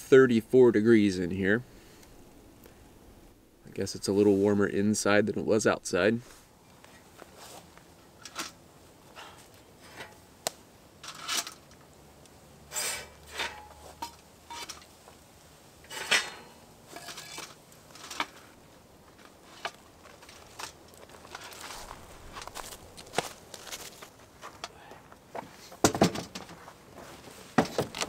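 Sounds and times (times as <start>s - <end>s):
bricks clinking against metal bucket: 15.9s - 18.4s.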